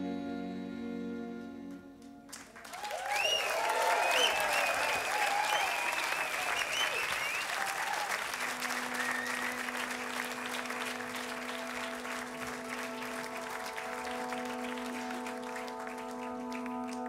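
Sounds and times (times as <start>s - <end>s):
audience applause: 2.3s - 17.0s
layered held notes: 8.5s - 17.0s.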